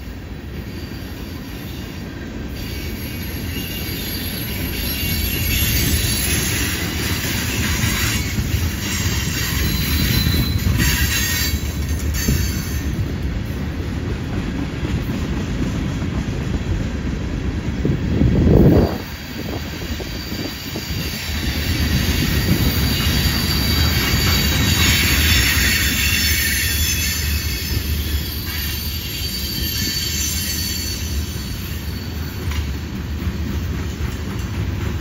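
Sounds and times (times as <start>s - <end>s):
train wheels rumbling on rail: 0.0s - 35.0s
wheel squeal: 2.6s - 13.0s, 19.5s - 32.8s.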